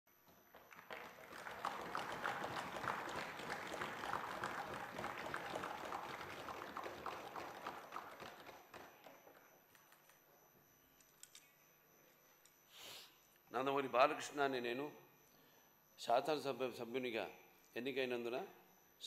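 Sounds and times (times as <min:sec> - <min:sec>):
applause: 0:00.4 - 0:09.2.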